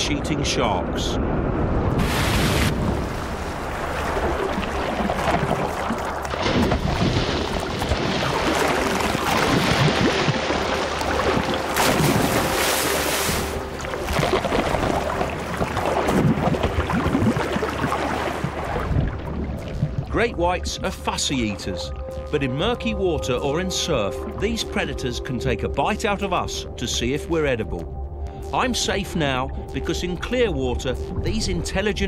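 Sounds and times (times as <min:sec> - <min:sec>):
water churning and splashing: 0:02.0 - 0:21.2.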